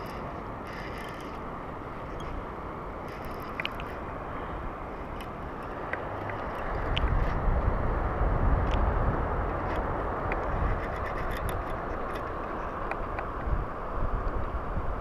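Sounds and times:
faint reel clicks: 0:00.0 - 0:02.4, 0:03.0 - 0:04.0, 0:05.0 - 0:07.4, 0:09.5 - 0:13.5
fishing reel whirring: 0:00.0 - 0:07.4, 0:10.4 - 0:13.1
wind on microphone: 0:00.0 - 0:15.0.

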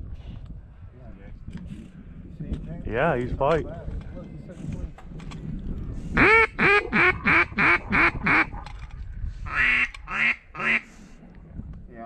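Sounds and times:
duck call quacks: 0:06.2 - 0:08.5, 0:09.5 - 0:10.9.

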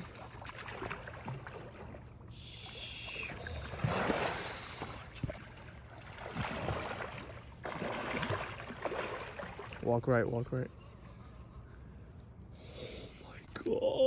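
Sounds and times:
fish thrashing and splashing: 0:00.0 - 0:02.2, 0:03.0 - 0:09.8.

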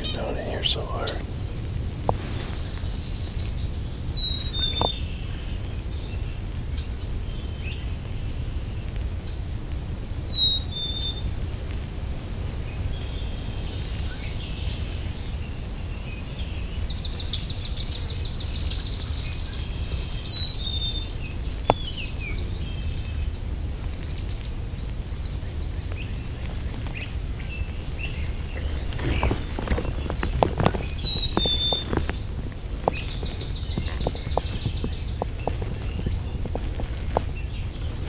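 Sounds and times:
songbird chirps: 0:00.0 - 0:38.0
steady low rumble: 0:00.0 - 0:38.0.

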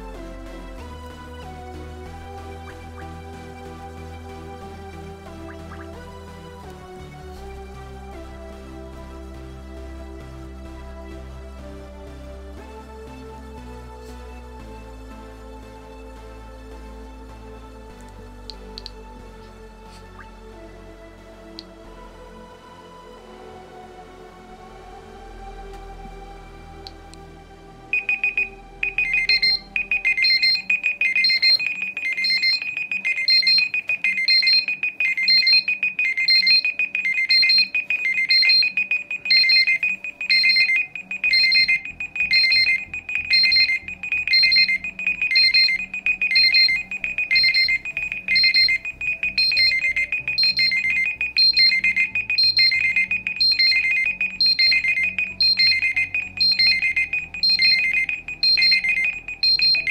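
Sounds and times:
looping alarm melody: 0:00.0 - 0:17.4, 0:18.5 - 0:59.9
repeating alarm beeps: 0:02.1 - 0:06.4, 0:27.9 - 0:59.9.

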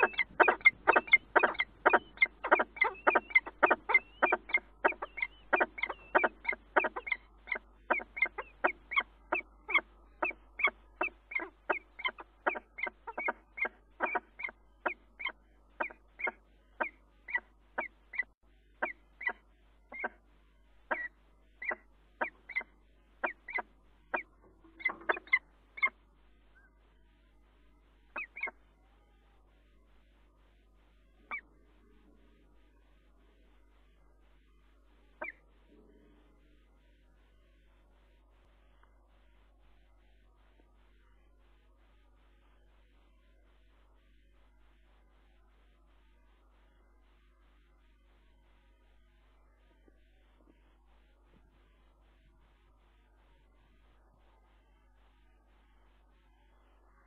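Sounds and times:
falcon harsh calls: 0:00.0 - 0:17.9.

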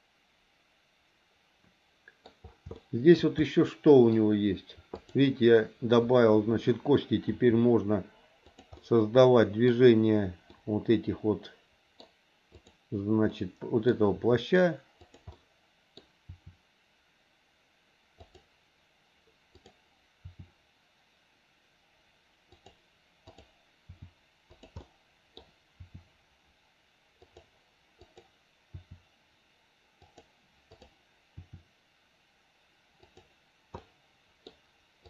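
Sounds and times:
mouse and keyboard clicking: 0:04.9 - 0:05.3, 0:08.4 - 0:08.9, 0:12.0 - 0:12.8, 0:15.0 - 0:15.4, 0:18.2 - 0:18.5, 0:22.5 - 0:26.1, 0:27.2 - 0:29.0, 0:30.0 - 0:31.6, 0:33.0 - 0:34.6.

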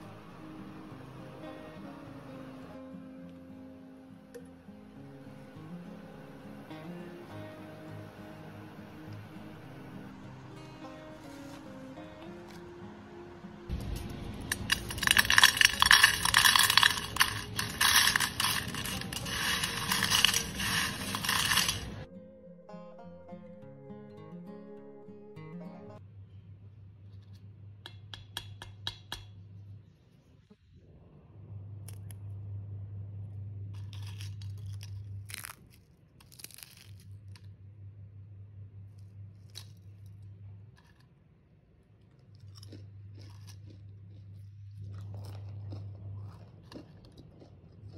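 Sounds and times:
chips clattering onto ceramic plate: 0:14.5 - 0:22.1
chips crackling in hand: 0:14.5 - 0:22.1, 0:33.8 - 0:37.6, 0:39.0 - 0:41.2, 0:41.9 - 0:47.9.

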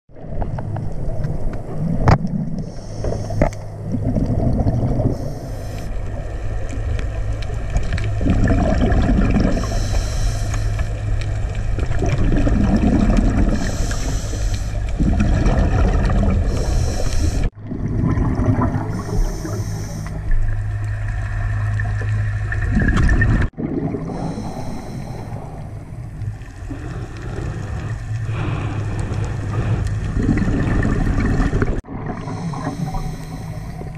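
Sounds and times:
low hum: 0:00.1 - 0:33.9
muffled underwater rumble: 0:00.1 - 0:33.9
scuba regulator breathing hiss: 0:02.6 - 0:03.8, 0:05.1 - 0:06.0, 0:09.4 - 0:11.0, 0:13.5 - 0:15.0, 0:16.5 - 0:17.5, 0:18.9 - 0:20.3, 0:24.1 - 0:25.8, 0:32.2 - 0:33.9.

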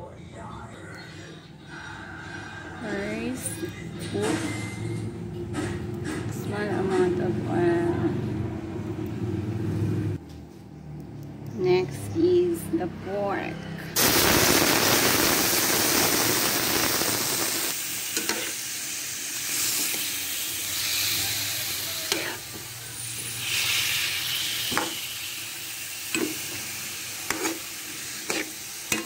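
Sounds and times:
meat sizzling in hot oil: 0:14.0 - 0:29.0
metal spoon scraping a pan: 0:18.2 - 0:18.6, 0:20.7 - 0:25.1, 0:26.1 - 0:29.0.

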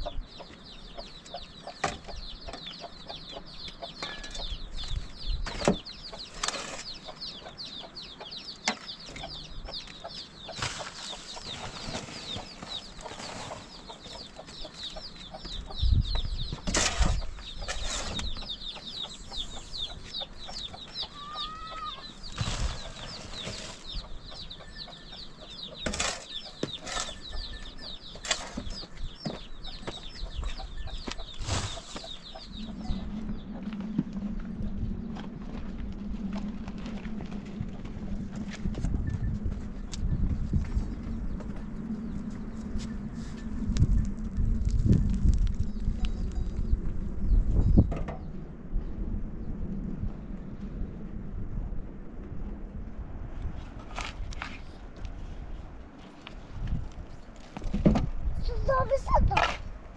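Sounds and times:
shovel scraping metal wheelbarrow: 0:16.6 - 0:18.3, 0:22.3 - 0:23.8, 0:25.8 - 0:27.4.

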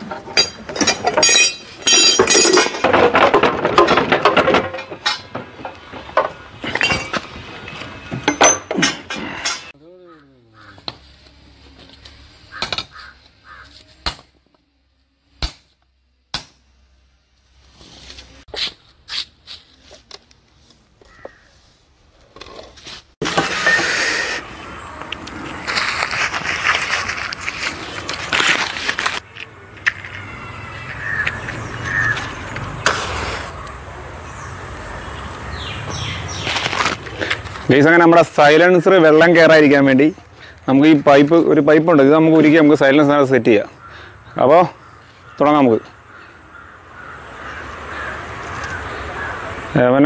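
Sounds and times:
crow cawing: 0:09.9 - 0:10.9, 0:12.5 - 0:13.8, 0:21.0 - 0:21.6, 0:30.2 - 0:32.2, 0:43.7 - 0:49.6
burning paper crackling: 0:25.3 - 0:29.5
newspaper crinkling: 0:25.3 - 0:30.2, 0:36.4 - 0:37.7.

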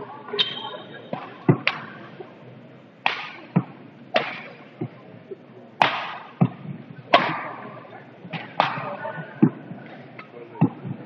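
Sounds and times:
racket striking shuttlecock: 0:01.1 - 0:02.0, 0:03.0 - 0:04.9, 0:05.8 - 0:07.7, 0:08.3 - 0:10.8.

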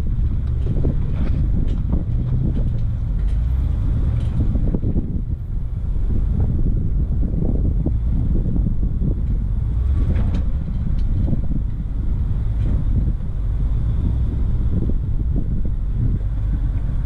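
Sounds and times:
engine rumbling while crawling: 0:00.0 - 0:17.0
wind buffeting microphone: 0:00.0 - 0:17.0.

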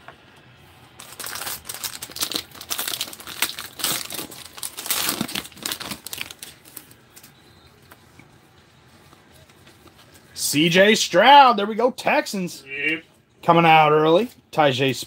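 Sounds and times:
plastic wrapper crinkling: 0:01.0 - 0:07.4.

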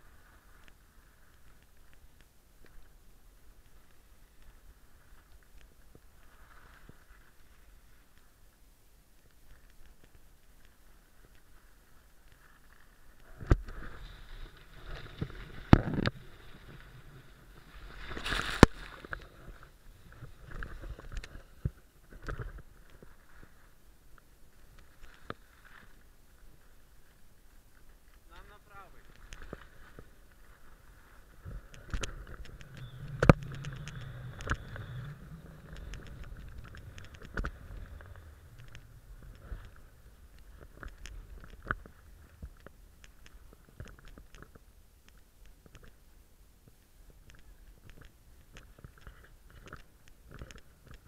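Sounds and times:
skis scraping on snow: 0:00.0 - 0:02.2, 0:02.8 - 0:08.4, 0:10.3 - 0:21.9, 0:24.5 - 0:43.7
rush of snow: 0:00.0 - 0:43.7
ski edges scraping on snow: 0:10.8 - 0:21.8
skier falling thud: 0:17.9 - 0:19.1
low rumble: 0:30.8 - 0:43.8.

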